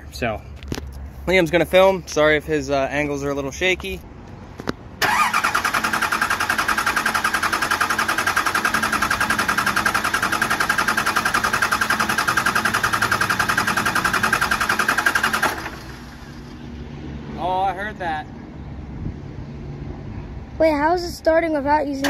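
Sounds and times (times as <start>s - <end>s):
diesel engine cranking: 5.0s - 16.6s.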